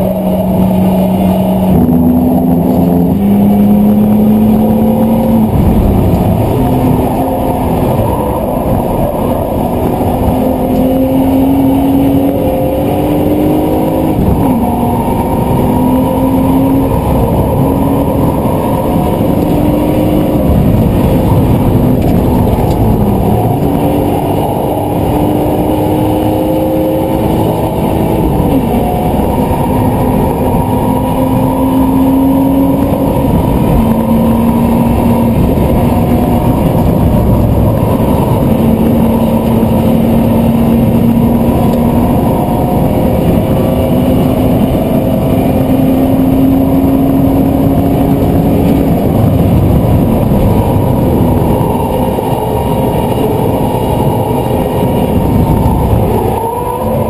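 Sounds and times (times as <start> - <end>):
car engine revving: 0.0 - 57.0
road noise: 0.0 - 57.0.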